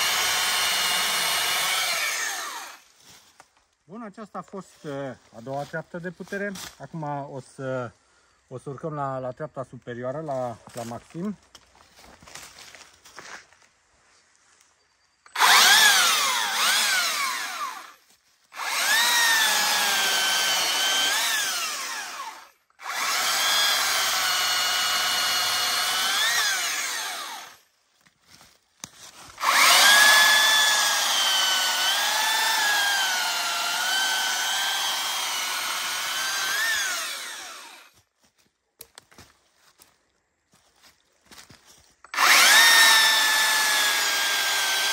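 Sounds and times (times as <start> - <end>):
chainsaw cutting wood: 0.0 - 2.9, 15.3 - 27.7, 29.1 - 38.0, 42.1 - 44.9.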